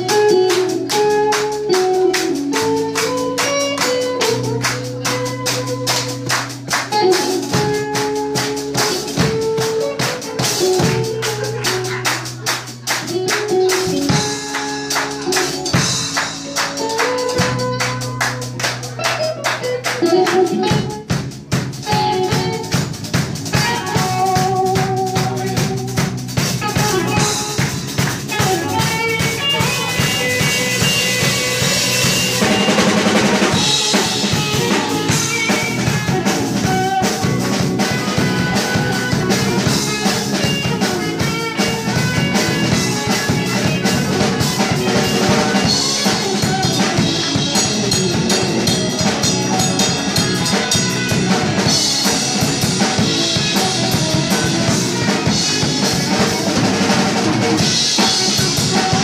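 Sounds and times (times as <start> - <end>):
drum kit steady beat: 0.0 - 59.0
electric bass: 0.0 - 59.0
electric guitar: 0.0 - 59.0.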